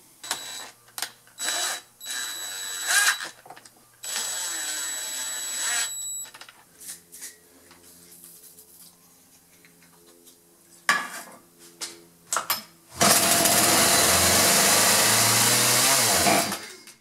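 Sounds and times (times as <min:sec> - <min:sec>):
chainsaw engine running: 0:13.0 - 0:16.6.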